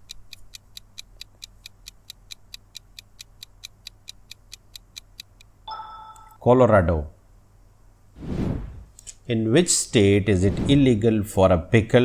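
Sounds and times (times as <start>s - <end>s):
countdown timer ticking: 0.0s - 6.4s
short electronic chime: 5.7s - 6.4s.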